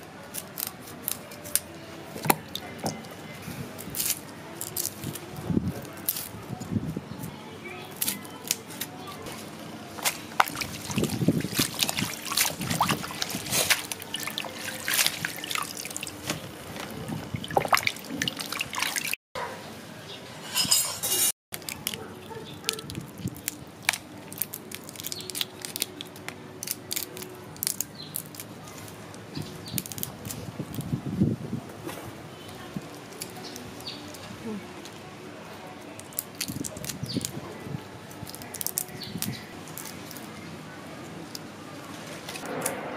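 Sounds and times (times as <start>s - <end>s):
water splashing and dripping: 10.3s - 19.2s.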